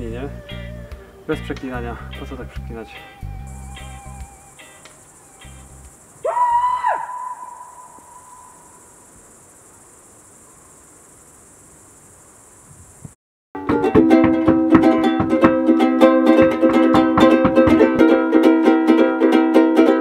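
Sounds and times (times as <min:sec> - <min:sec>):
crickets chirring: 0:00.3 - 0:13.2.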